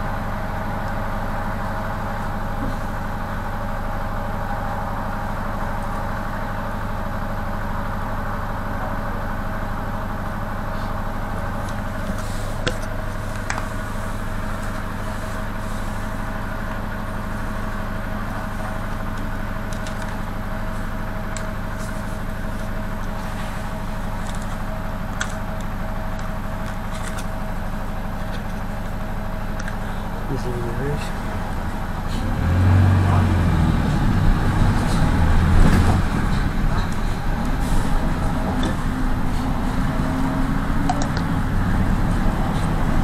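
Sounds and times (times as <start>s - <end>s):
minibus engine and road noise: 0.0s - 43.0s.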